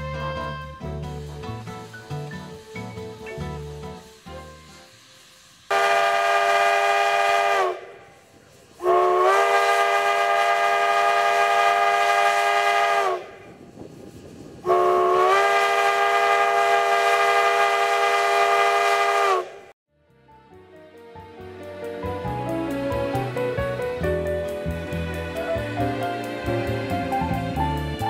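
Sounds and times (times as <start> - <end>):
steam whistle blasts: 0.0 - 13.5, 14.6 - 19.7
steam hissing: 0.3 - 19.8, 21.8 - 28.0.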